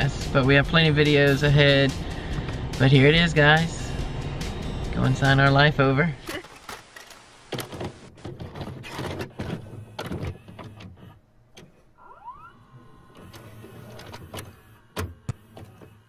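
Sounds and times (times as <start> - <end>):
videotape mechanism clunks and clicks: 6.3 - 11.8, 13.0 - 16.0
motor whir: 9.2 - 16.0.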